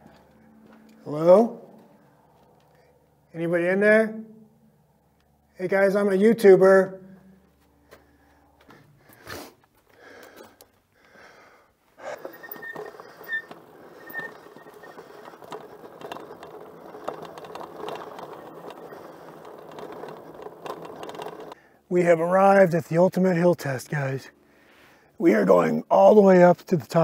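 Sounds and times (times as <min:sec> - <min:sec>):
bike tyres on dirt rattling: 0:12.0 - 0:21.6.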